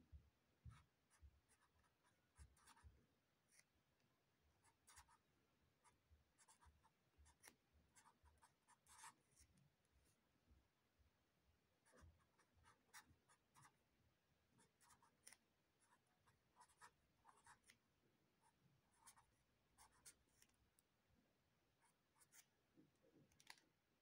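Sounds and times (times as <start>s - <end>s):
marker scratching on paper: 0.7s - 2.9s, 4.6s - 5.2s, 5.8s - 9.5s, 11.9s - 13.8s, 14.6s - 17.8s, 18.4s - 20.5s, 21.8s - 22.5s.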